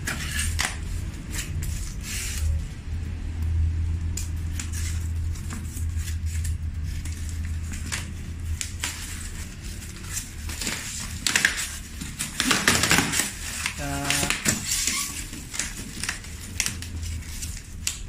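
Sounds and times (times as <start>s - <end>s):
styrofoam crackling and creaking: 4.5s - 18.0s.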